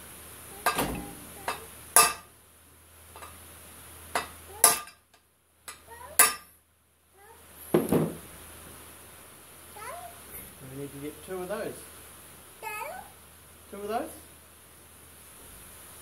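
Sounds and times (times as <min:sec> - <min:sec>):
hammer clanking on steel: 0:00.6 - 0:02.3.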